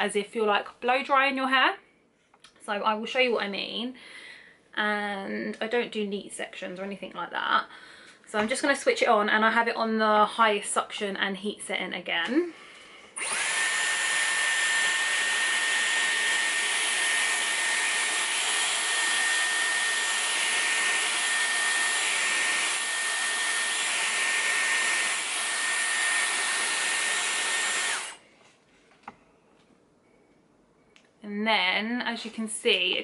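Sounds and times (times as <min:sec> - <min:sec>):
hair styler blowing air with whine: 0:13.2 - 0:28.2.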